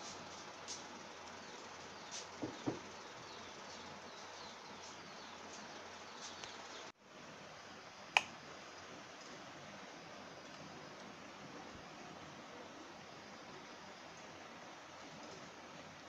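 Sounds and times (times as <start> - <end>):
steady low hiss: 0.0 - 16.0
soft handling knocks: 2.4 - 2.9.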